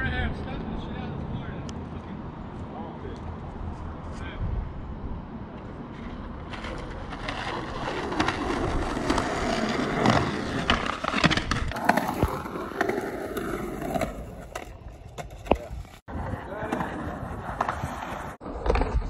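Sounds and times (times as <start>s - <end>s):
skateboard wheels rolling on pavement: 0.0s - 19.0s
skateboard clacks: 6.0s - 19.0s.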